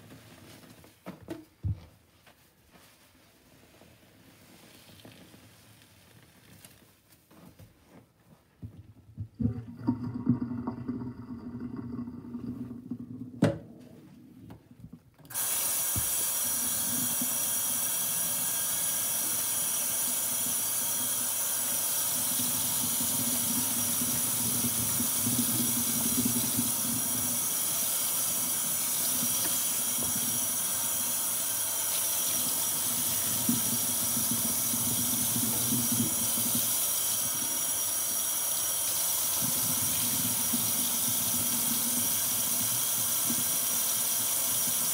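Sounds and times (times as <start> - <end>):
water running into sink: 9.2 - 14.4, 15.3 - 44.9.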